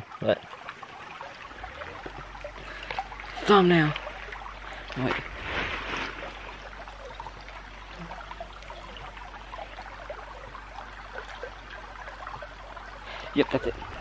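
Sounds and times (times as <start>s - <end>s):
creek water trickling: 0.0s - 14.0s.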